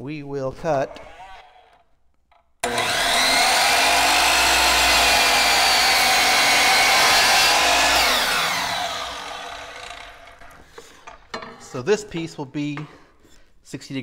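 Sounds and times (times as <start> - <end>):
miter saw cutting wood: 2.6 - 10.6.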